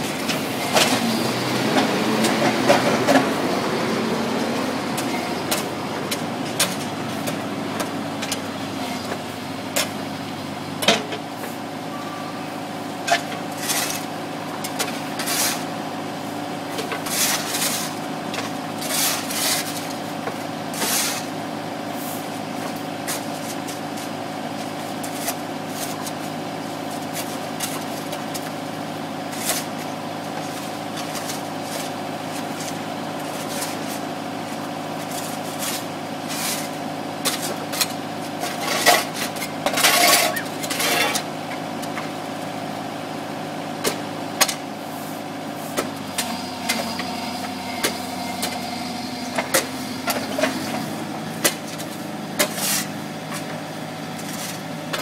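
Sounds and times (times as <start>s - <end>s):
excavator diesel engine running: 0.0s - 55.0s
shovels scraping on asphalt: 13.1s - 14.1s, 14.7s - 15.7s, 16.9s - 18.0s, 18.8s - 20.1s, 20.7s - 21.4s, 29.3s - 41.3s, 44.8s - 53.5s.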